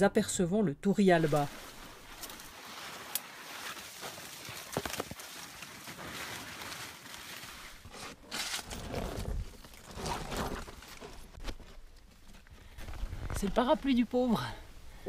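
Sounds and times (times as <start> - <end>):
leaves and branches rustling: 0.9 - 15.0
footsteps: 1.2 - 8.7
twigs snapping: 1.3 - 14.0.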